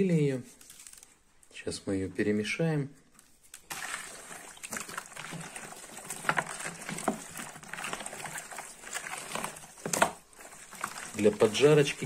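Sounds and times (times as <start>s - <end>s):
wet fish squelching in a basin: 3.2s - 12.0s.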